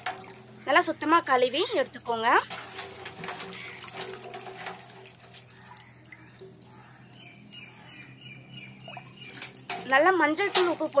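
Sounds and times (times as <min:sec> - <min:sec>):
water splashing in a basin: 0:02.2 - 0:07.0, 0:08.7 - 0:11.0.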